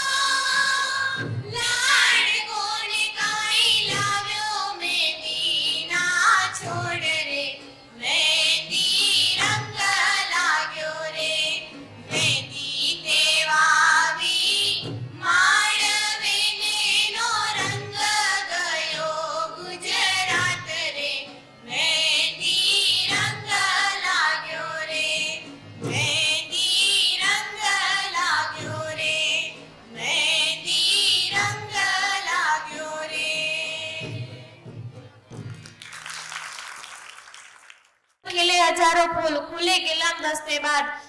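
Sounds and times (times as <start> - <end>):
high voice singing with vibrato: 0.0 - 7.2.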